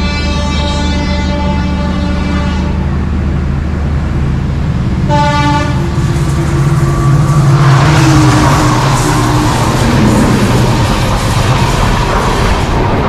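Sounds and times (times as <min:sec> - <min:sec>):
train horn: 0:00.0 - 0:03.0, 0:05.1 - 0:10.4
train passing rumble: 0:00.0 - 0:13.0.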